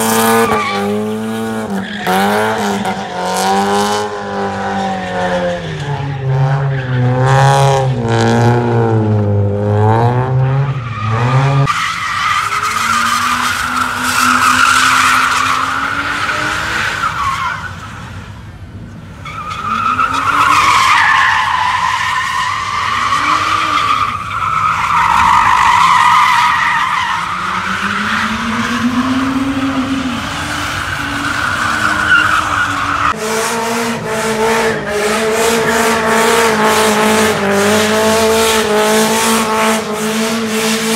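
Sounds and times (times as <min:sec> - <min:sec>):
car engine revving: 0:00.0 - 0:11.8, 0:27.1 - 0:40.9.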